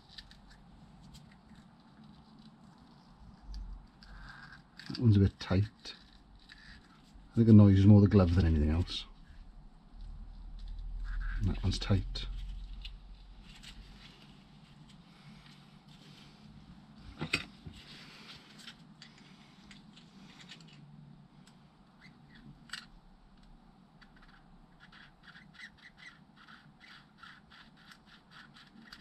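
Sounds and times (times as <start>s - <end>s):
small squeaks: 0.0s - 7.2s, 10.6s - 14.3s, 22.0s - 22.9s, 24.0s - 29.0s.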